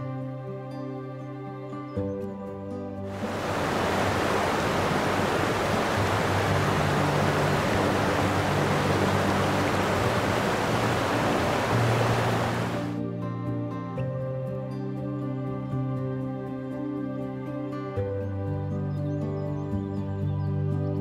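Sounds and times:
faint background music: 0.0 - 21.0
sea water rushing: 3.1 - 13.0.

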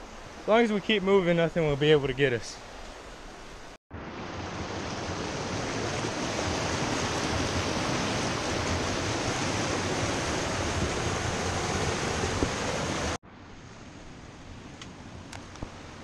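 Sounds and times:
water rushing over rocks: 4.2 - 13.2.

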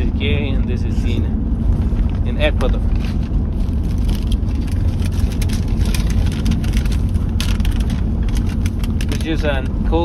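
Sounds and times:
road and engine rumble: 0.0 - 10.0
paper cards rustling: 2.6 - 9.7.

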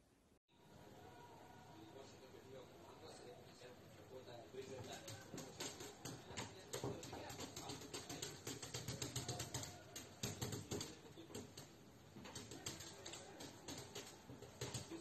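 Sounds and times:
cat claws tapping on screen: 4.7 - 15.0.

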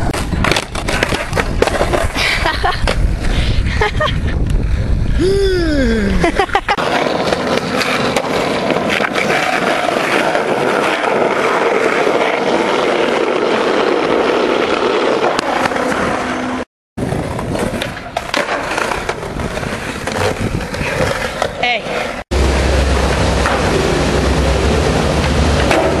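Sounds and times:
skateboard clacks: 0.0 - 2.2, 6.8 - 16.3, 17.1 - 22.2, 25.2 - 26.0
skateboard wheels rolling on pavement: 0.0 - 5.2, 6.3 - 26.0.

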